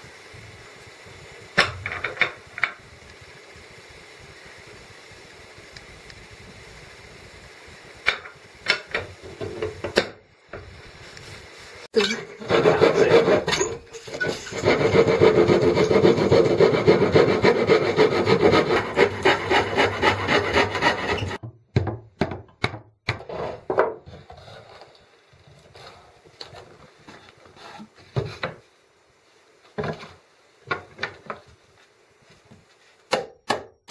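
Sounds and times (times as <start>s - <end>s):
saw cutting wood: 12.0s - 21.4s
wood knocks and scrapes: 12.4s - 22.4s, 23.1s - 24.9s.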